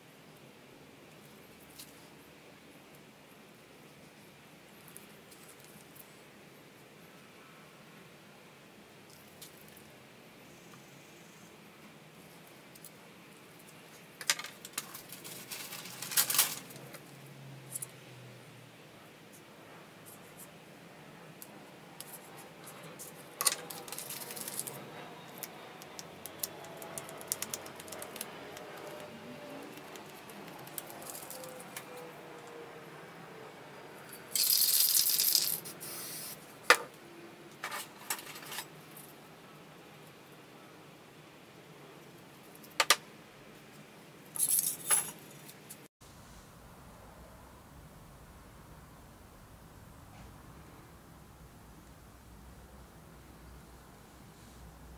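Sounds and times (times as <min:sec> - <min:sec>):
high-pitched crackling rustle: 0:12.2 - 0:18.0, 0:21.4 - 0:32.4
brief hiss: 0:35.6 - 0:36.4.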